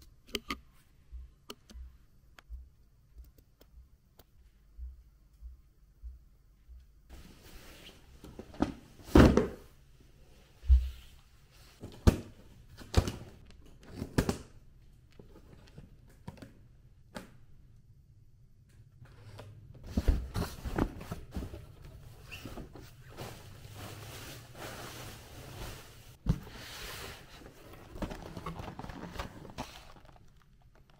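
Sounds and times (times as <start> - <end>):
objects knocking and thudding: 27.4 - 30.9.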